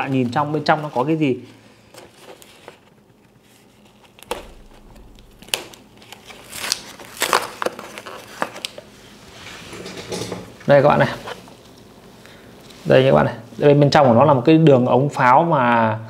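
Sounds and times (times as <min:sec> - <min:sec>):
paper casing crinkling: 0:00.0 - 0:08.9.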